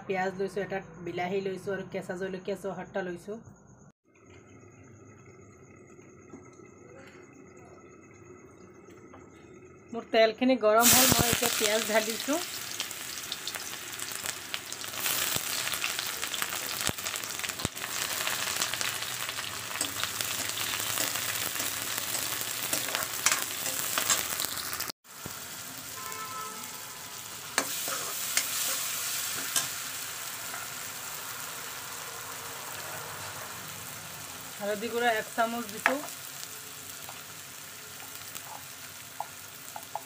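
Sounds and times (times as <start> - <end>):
onions sizzling in hot oil: 10.8 - 40.0
metal spoon scraping and clinking: 19.7 - 24.4.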